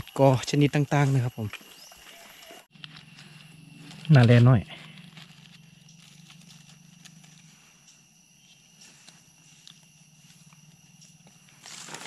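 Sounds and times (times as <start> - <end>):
footsteps on dry leaf litter: 0.9 - 7.5, 11.6 - 12.0.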